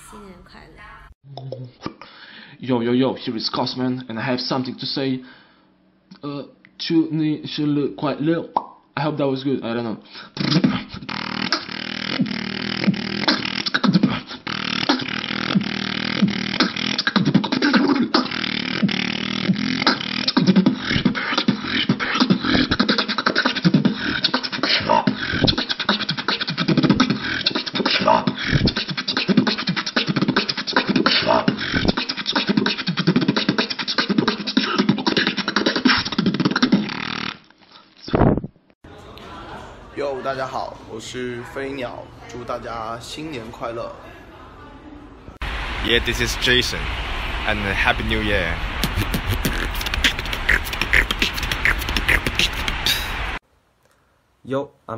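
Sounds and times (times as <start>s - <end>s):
beatboxing: 10.3s - 38.5s, 45.6s - 53.4s.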